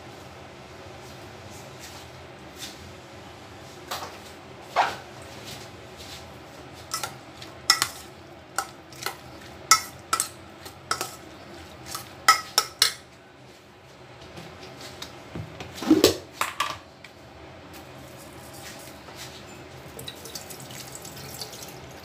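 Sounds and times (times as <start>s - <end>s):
metal spoon clinking in a bowl: 7.7s - 8.0s, 8.6s - 11.2s, 11.9s - 13.0s.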